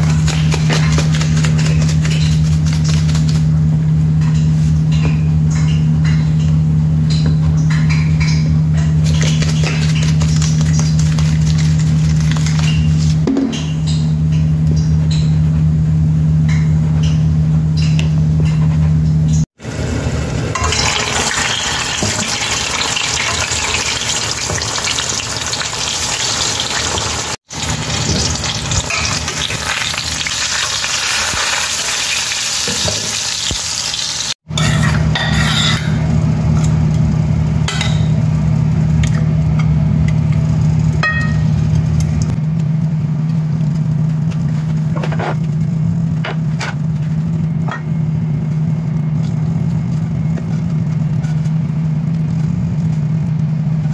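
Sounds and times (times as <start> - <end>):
oil sizzling in a pan: 19.6 - 35.6
low hum: 34.5 - 53.9.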